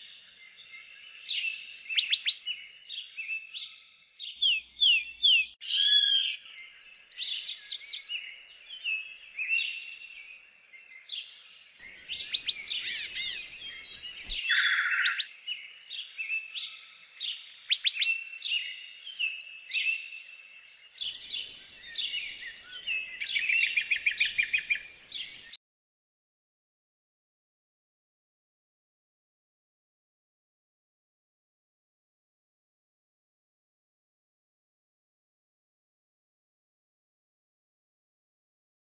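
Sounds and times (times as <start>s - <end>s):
songbird singing: 0.0s - 25.6s.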